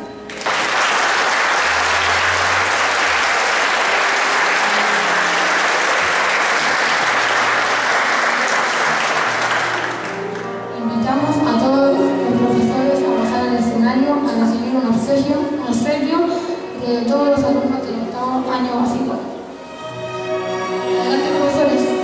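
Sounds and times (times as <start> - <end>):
audience clapping: 0.2 - 10.6.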